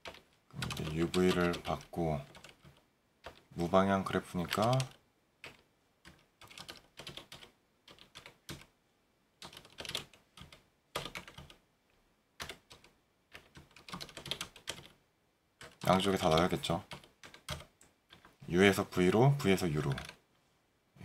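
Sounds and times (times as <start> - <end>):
computer keyboard typing: 0.0 - 3.7, 4.4 - 8.7, 9.4 - 11.6, 12.4 - 15.0, 15.6 - 18.3.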